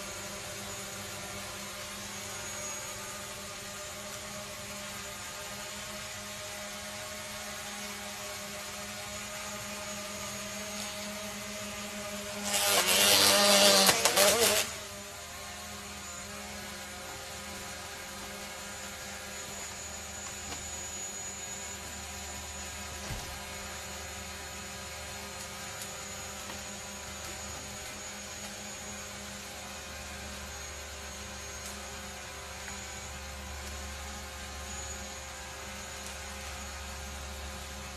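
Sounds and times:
drone propeller whine: 0.0 - 37.9
propellers tearing into hornet nest: 12.3 - 14.8.

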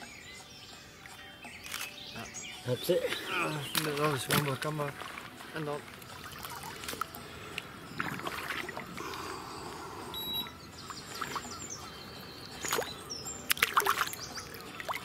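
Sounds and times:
water sloshing and splashing: 2.8 - 11.9, 12.5 - 15.0.

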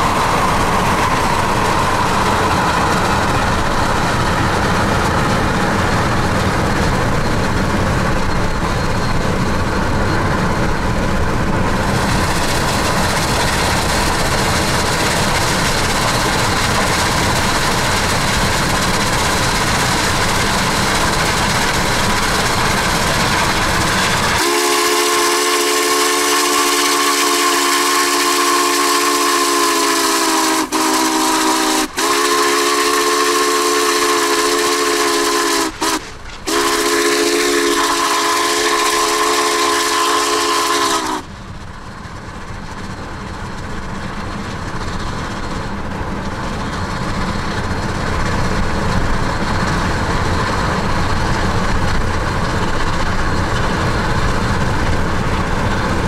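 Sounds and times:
car road and wind rumble: 0.0 - 24.4
steam locomotive whistle: 24.2 - 41.3.

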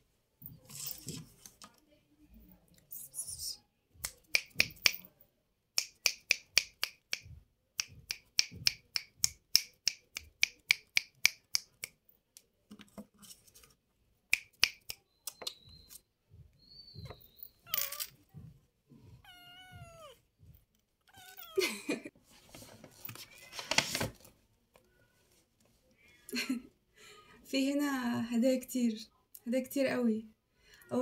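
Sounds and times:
finger snaps: 5.8 - 12.5, 14.3 - 15.7
cat mewing: 19.2 - 20.2, 21.1 - 21.6.

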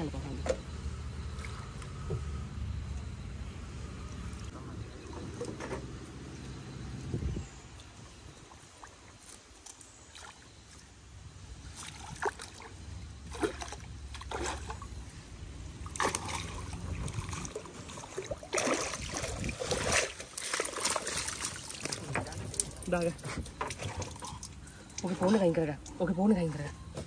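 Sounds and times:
water splashing: 11.6 - 26.0
water pouring: 15.9 - 25.7.

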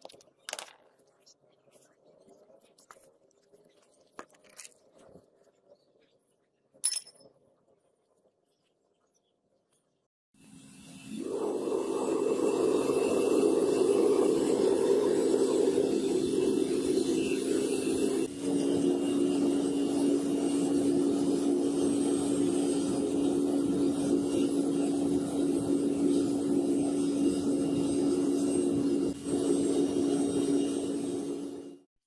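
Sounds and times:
furnace burner roar: 10.5 - 31.9.

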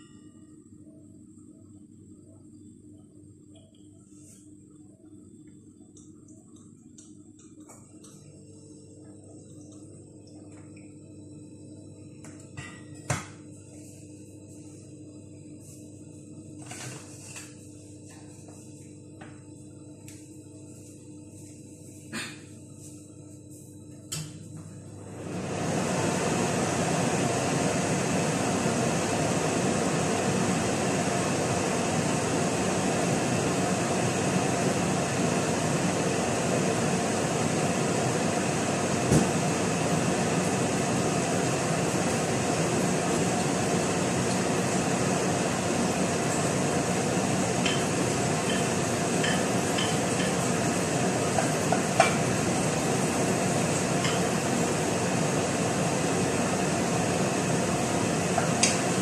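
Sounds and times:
gas stove burner hissing: 25.0 - 59.0
kitchenware clinking: 47.7 - 50.4.

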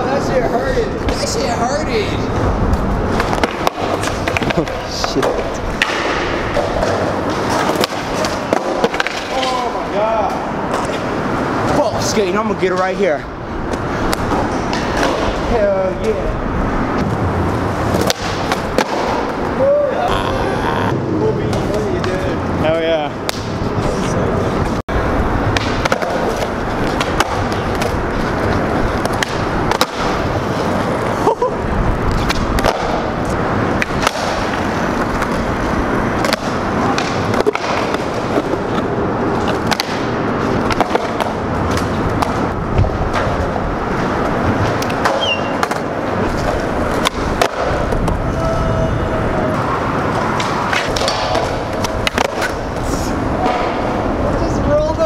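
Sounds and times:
skateboard wheels rolling on concrete: 0.0 - 55.0
skateboard clacks and knocks: 3.1 - 11.1, 25.5 - 31.2, 32.0 - 48.6, 49.4 - 54.3.

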